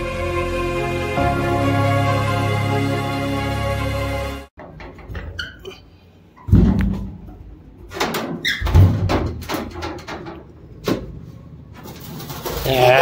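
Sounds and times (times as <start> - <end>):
knocks and thumps: 6.4 - 11.2.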